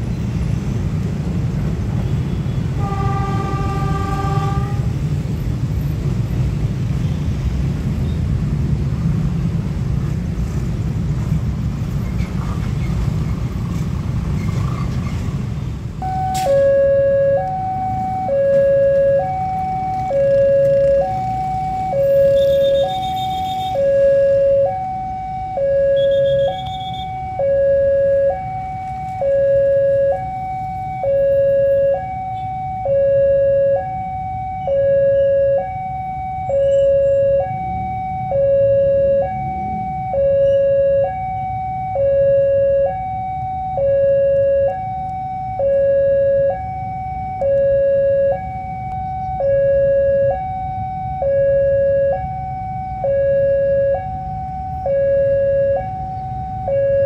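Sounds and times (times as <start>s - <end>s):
low rumble of traffic: 0.0s - 57.0s
level crossing two-tone alarm: 16.0s - 57.0s.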